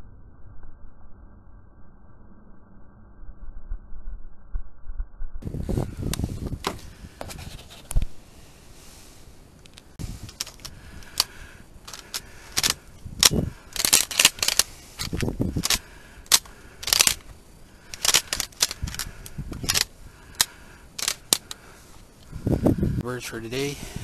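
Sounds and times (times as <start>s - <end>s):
dry reeds rustling and crackling: 5.4s - 23.8s.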